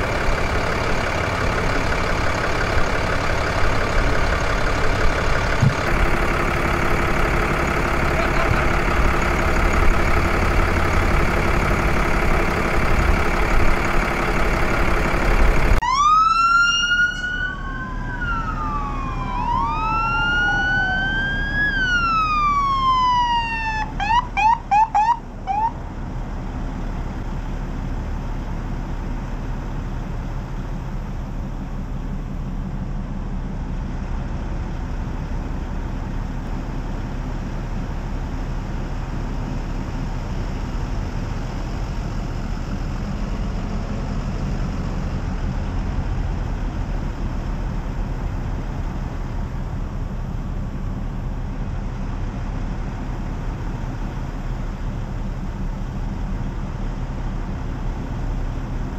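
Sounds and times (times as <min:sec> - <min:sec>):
low rumble of vehicle engines: 0:00.0 - 0:58.9
police siren wailing and yelping: 0:15.8 - 0:25.8.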